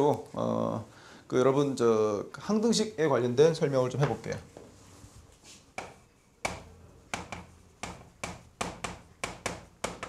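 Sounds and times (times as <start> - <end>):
chalk tapping on chalkboard: 5.7 - 10.0.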